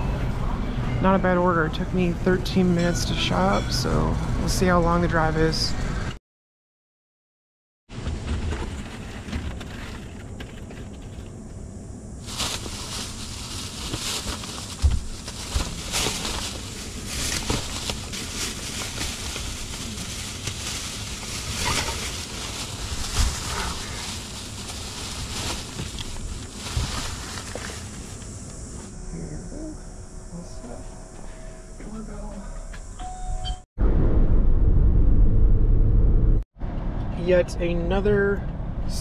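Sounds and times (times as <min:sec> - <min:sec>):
plastic bags crinkling: 0:12.2 - 0:28.1.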